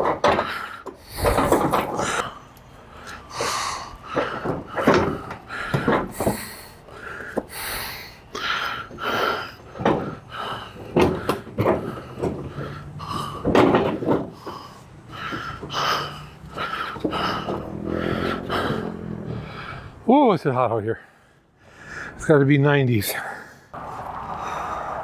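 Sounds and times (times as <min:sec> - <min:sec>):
cart wheels knocking over boards: 0:00.0 - 0:02.3, 0:04.0 - 0:07.6, 0:08.9 - 0:19.4.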